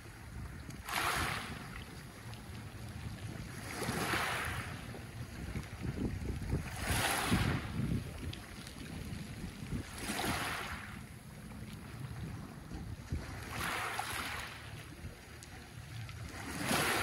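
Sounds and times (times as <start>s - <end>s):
steady low rumble: 0.0s - 17.0s
waves washing onto pebble beach: 16.4s - 17.0s.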